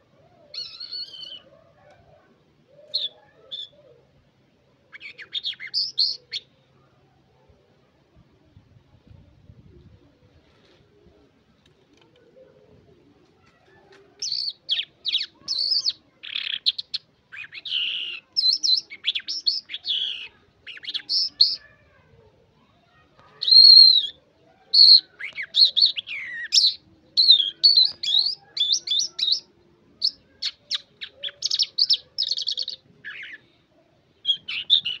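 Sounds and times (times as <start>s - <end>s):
lark singing: 0.5s - 1.5s, 4.9s - 6.5s, 14.2s - 21.6s, 23.4s - 33.5s, 34.2s - 35.0s.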